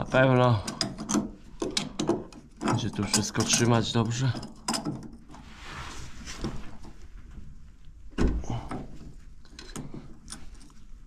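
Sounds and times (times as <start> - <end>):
hands handling parts and tools: 6.1 - 11.0.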